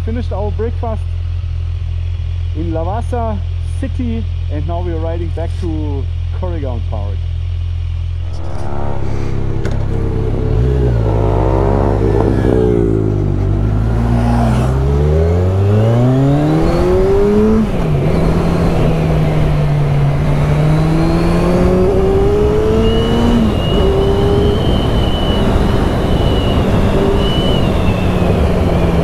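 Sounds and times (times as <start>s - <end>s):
motorcycle engine revving: 7.4s - 29.0s
wind and road noise: 7.6s - 29.0s.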